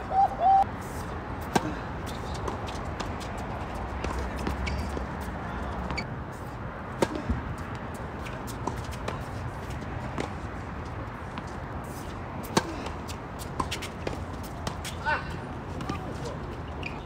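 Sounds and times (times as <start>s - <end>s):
tennis balls struck by rackets: 1.4s - 3.2s, 6.9s - 7.6s, 12.4s - 15.1s
tennis balls bouncing on court: 1.4s - 6.1s, 6.9s - 11.7s, 12.4s - 17.0s.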